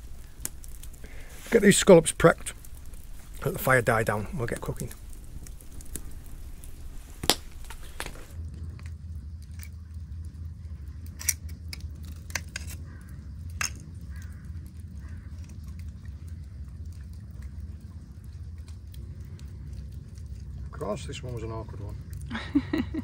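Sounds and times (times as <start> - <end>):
low steady rumble: 0.0 - 23.0.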